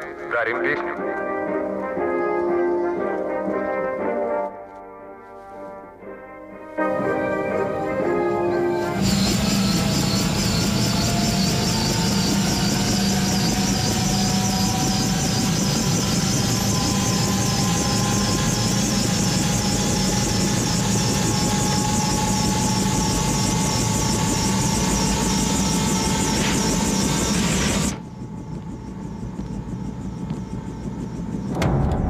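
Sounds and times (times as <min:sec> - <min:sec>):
helicopter turbine whine: 0:00.0 - 0:04.3, 0:06.7 - 0:32.0
helicopter rotor beat: 0:06.8 - 0:32.0.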